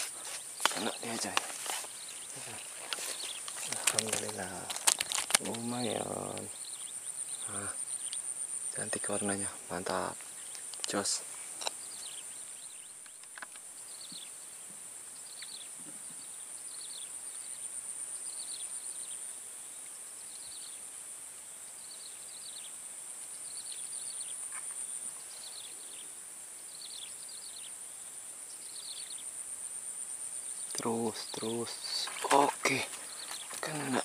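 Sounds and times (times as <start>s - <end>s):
insects droning: 0.0s - 34.0s.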